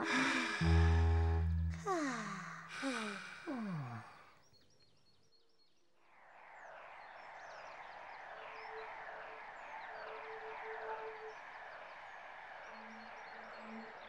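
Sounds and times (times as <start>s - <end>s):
falling sighs: 0.0s - 4.4s.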